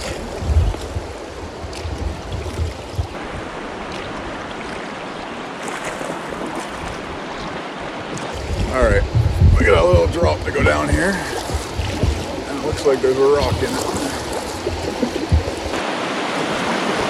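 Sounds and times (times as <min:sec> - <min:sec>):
river rapids rushing: 0:03.1 - 0:17.0
low rumble: 0:08.4 - 0:15.8.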